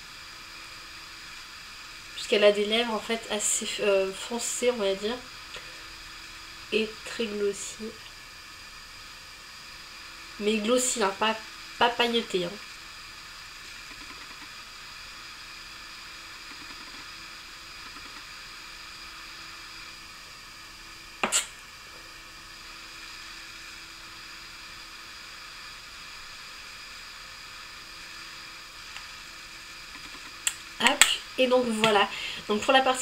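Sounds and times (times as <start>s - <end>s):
faint hum: 0.0s - 33.0s
low room hiss: 0.0s - 33.0s
sharp click: 21.2s - 21.5s.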